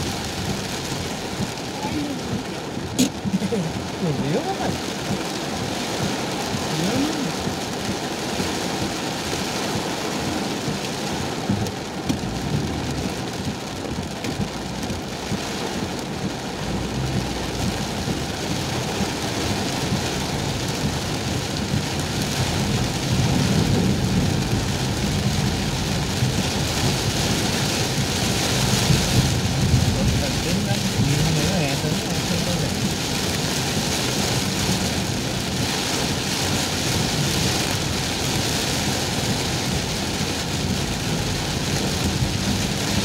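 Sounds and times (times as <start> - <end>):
heavy rain on car roof: 0.0 - 43.0
low rumble: 10.7 - 43.0.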